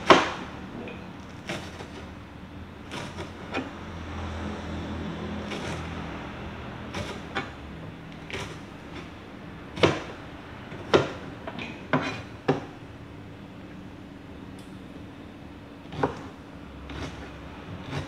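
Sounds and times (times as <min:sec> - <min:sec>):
knife chopping on a plastic board: 0:00.0 - 0:00.5, 0:09.8 - 0:12.7, 0:15.9 - 0:18.0.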